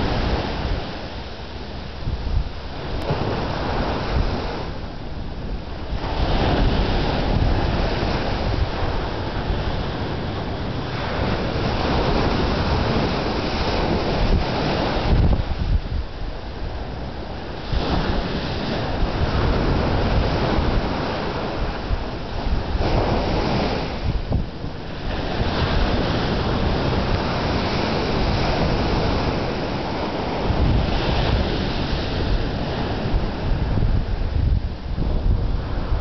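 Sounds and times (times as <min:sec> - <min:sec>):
ocean surf washing in: 0:00.0 - 0:36.0
wind rumbling on microphone: 0:00.0 - 0:36.0.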